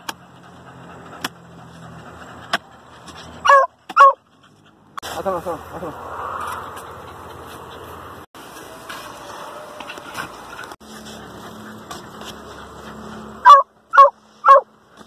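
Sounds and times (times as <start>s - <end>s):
dog barking: 3.4s - 4.2s, 13.4s - 14.7s.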